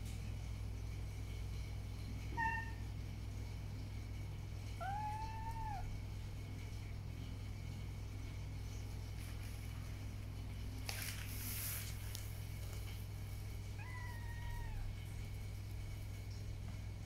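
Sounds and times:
steady low hum: 0:00.0 - 0:17.0
kitten meowing: 0:04.8 - 0:05.9, 0:13.8 - 0:14.9
hissing or rustling noise: 0:09.0 - 0:13.6.

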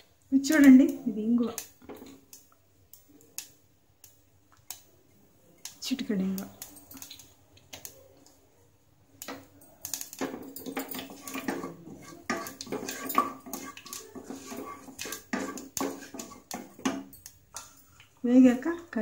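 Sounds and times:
spices frying: 0:00.0 - 0:19.0
wooden spatula scraping a pan: 0:10.2 - 0:17.1.

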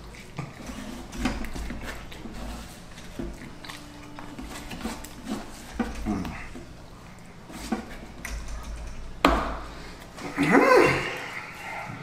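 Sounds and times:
chewing and biting food: 0:00.0 - 0:08.2.

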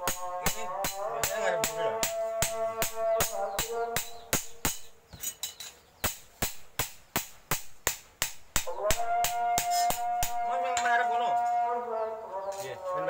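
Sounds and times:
hammer striking blade on anvil: 0:00.0 - 0:10.5.

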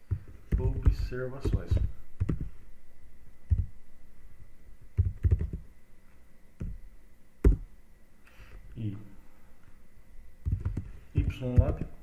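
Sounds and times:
typing on computer keyboard: 0:05.0 - 0:05.6, 0:10.5 - 0:11.9.

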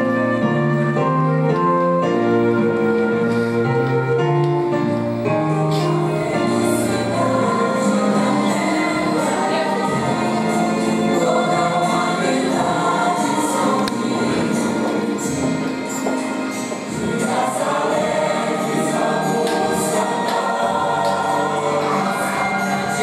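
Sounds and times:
instrumental accompaniment: 0:00.0 - 0:23.0
choir singing: 0:05.6 - 0:23.0.

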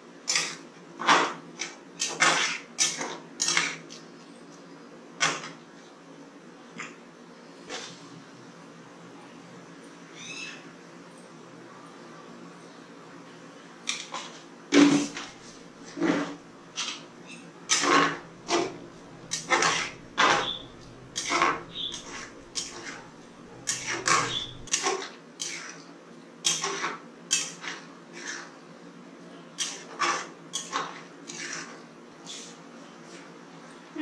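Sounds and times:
metal spatula scraping metal pan: 0:17.7 - 0:25.8, 0:29.6 - 0:32.6.

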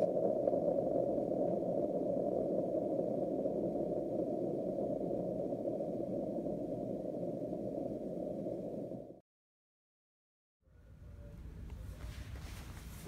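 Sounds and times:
muffled explosion rumble: 0:00.0 - 0:09.2.

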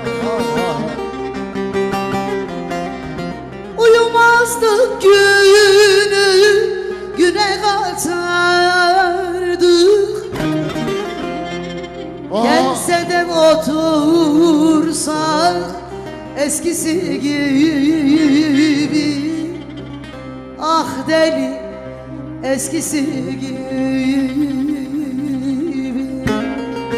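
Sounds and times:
instrumental accompaniment: 0:00.0 - 0:26.9
woman singing into a microphone: 0:03.8 - 0:10.4, 0:12.3 - 0:20.0, 0:20.6 - 0:26.9.

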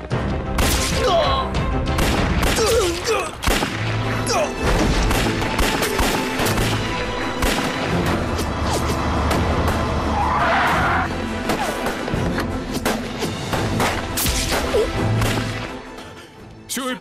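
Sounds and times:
dramatic action film score: 0:00.0 - 0:17.0
gunshots and booms: 0:01.8 - 0:04.0.

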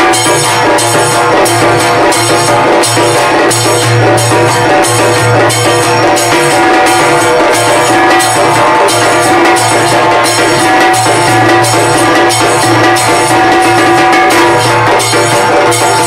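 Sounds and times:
music with percussion beat: 0:00.0 - 0:16.0.

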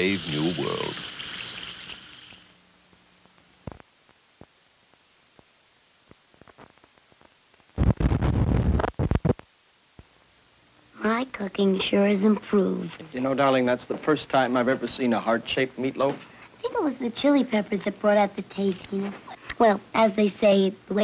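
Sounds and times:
faint film hiss: 0:00.0 - 0:21.0
rough crackling noise: 0:03.3 - 0:10.1.

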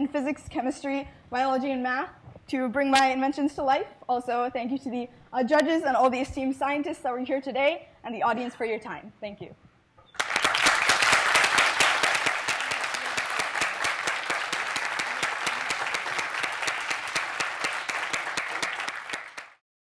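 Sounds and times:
audience applauding: 0:10.1 - 0:19.6.

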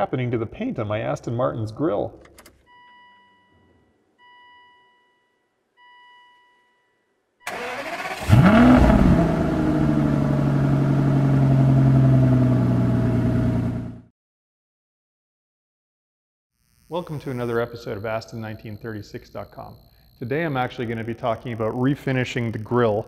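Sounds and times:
car engine revving and idling: 0:07.5 - 0:14.1
electronic chimes: 0:16.7 - 0:22.9.

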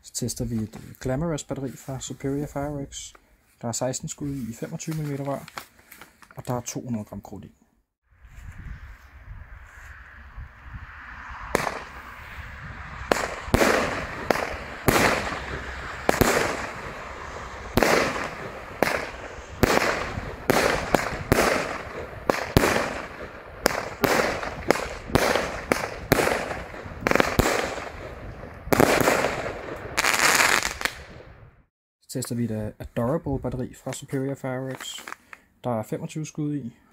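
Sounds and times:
firework shells bangs: 0:11.5 - 0:12.0, 0:13.1 - 0:30.9.

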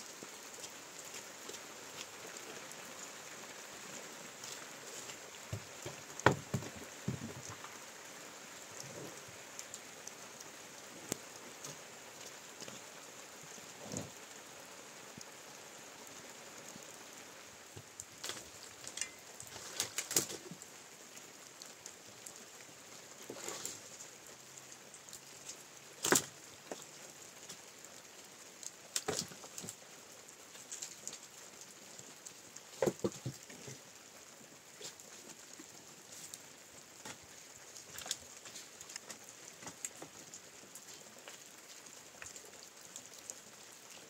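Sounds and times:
steady rain falling: 0:00.0 - 0:44.0
sharp knocks and taps: 0:05.5 - 0:07.6.

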